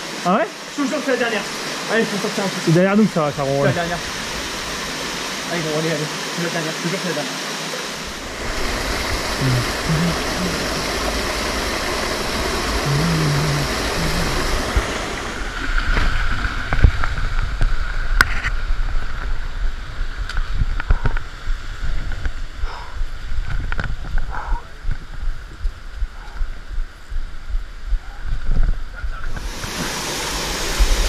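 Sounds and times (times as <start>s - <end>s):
rushing water and waterfall: 0.0s - 31.0s
wind buffeting microphone: 15.9s - 30.0s.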